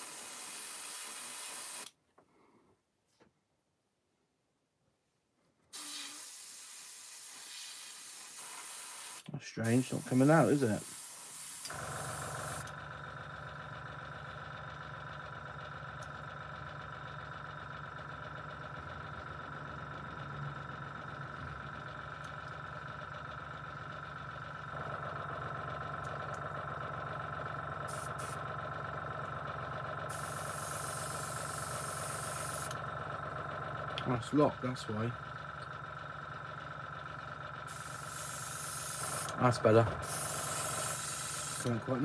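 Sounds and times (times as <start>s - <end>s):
air hissing through airbrush: 0.0s - 1.9s, 5.8s - 12.6s, 30.1s - 32.8s, 37.7s - 39.3s, 40.0s - 41.7s
compressor humming: 9.2s - 42.0s.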